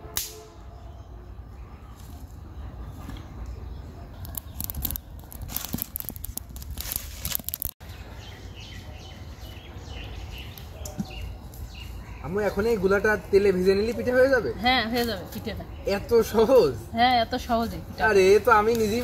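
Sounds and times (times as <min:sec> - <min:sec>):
crackling of burning straw: 0:04.2 - 0:08.1, 0:18.1 - 0:19.0.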